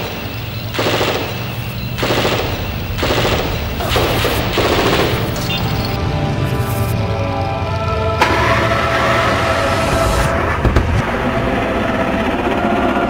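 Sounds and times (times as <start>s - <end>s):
automatic gunfire bursts: 0.0s - 6.0s.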